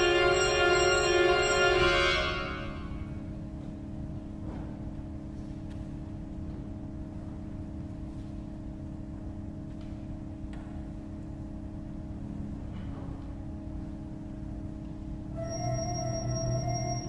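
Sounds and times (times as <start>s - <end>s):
pipe organ chord: 0.0s - 3.2s.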